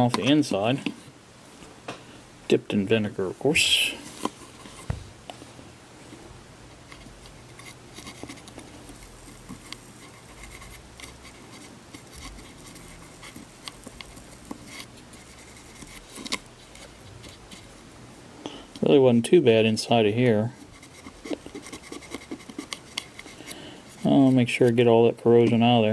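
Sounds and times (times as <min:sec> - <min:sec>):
cotton swab scratching and rubbing: 0:06.8 - 0:17.8, 0:20.0 - 0:25.7.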